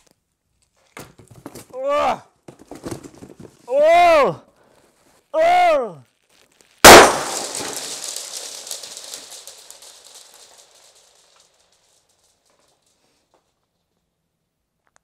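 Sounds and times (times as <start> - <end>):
crackle of small clicks: 6.0 - 14.1, 14.8 - 15.0
grenade bang in a cardboard box: 6.8 - 9.4.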